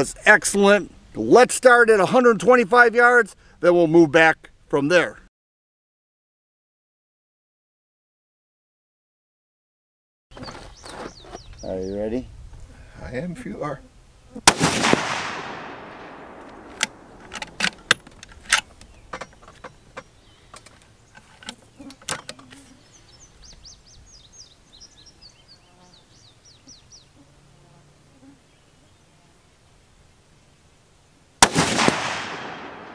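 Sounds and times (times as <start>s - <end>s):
bird chirping: 10.3s - 12.7s, 18.6s - 27.4s
rifle shot echoing: 14.5s - 18.0s, 31.4s - 32.9s
rifle bolt clicks: 16.0s - 19.3s.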